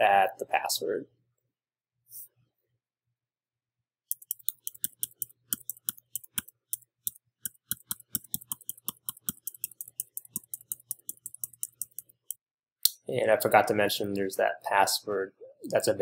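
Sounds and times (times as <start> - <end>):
keyboard typing clicks: 4.1 - 12.3.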